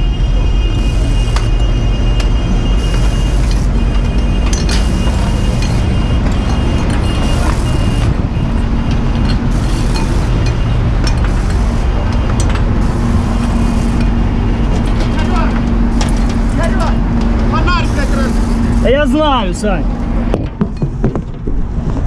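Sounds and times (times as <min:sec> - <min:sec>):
engine and hydraulic rumble: 0:00.0 - 0:22.0.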